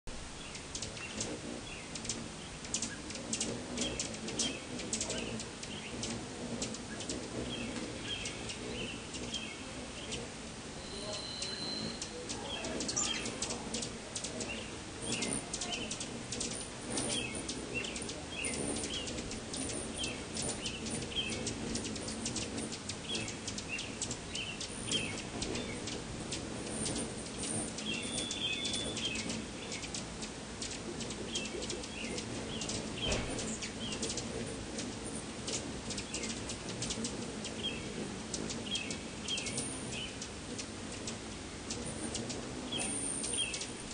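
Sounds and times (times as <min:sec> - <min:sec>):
hummingbird wings buzzing: 0:00.1 - 0:43.9
hummingbird chips and twitters: 0:00.3 - 0:43.9
high squeaky bird note: 0:10.8 - 0:13.4.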